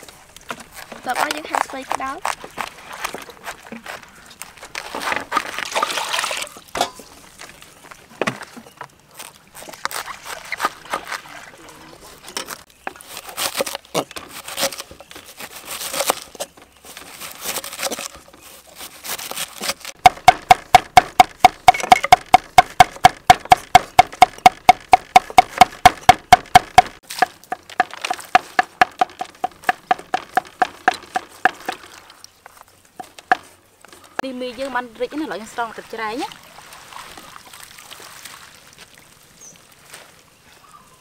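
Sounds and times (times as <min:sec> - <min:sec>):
knife crunching through cabbage: 0:09.1 - 0:11.4, 0:13.0 - 0:20.0.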